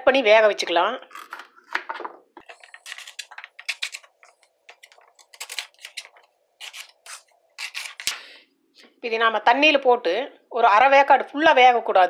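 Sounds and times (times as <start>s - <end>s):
knife cutting on wooden board: 4.7s - 8.2s.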